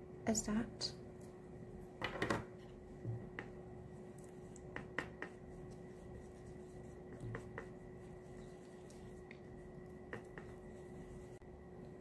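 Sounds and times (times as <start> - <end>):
faint steady hum: 0.0 - 12.0
paintbrush tapping plastic palette: 4.6 - 5.4.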